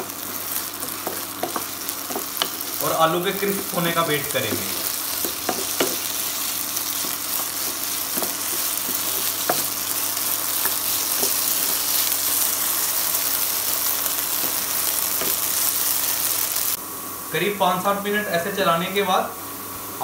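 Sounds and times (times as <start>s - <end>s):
potatoes sizzling in hot oil: 0.0s - 16.8s
wooden spatula knocking on pan: 0.9s - 2.6s, 4.4s - 6.2s, 7.0s - 9.7s.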